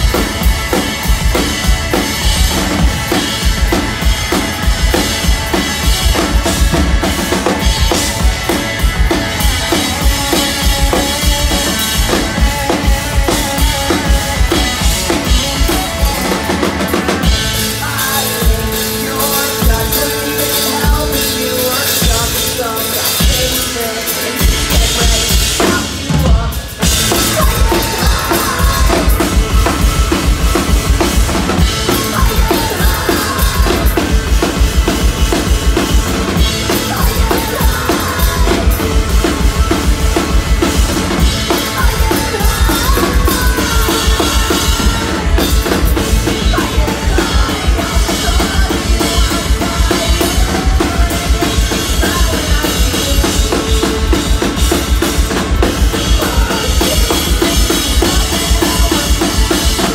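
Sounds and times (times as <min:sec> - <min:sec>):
live rock band playing: 0:00.0 - 0:59.9.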